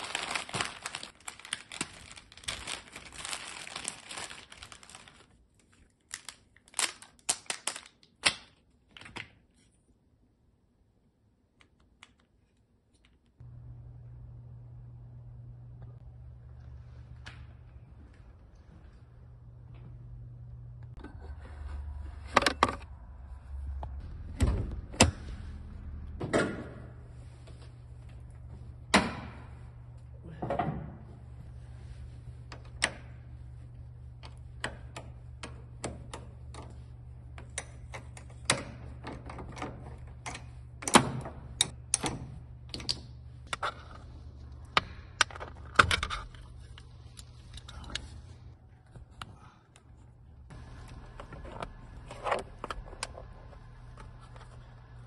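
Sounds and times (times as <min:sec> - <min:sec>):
steady low hum: 0:13.4 - 0:55.0.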